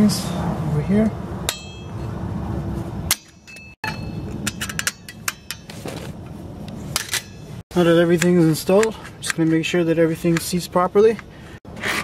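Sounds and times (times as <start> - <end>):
pliers and spring clinking on metal: 1.5 - 2.1, 3.1 - 9.4.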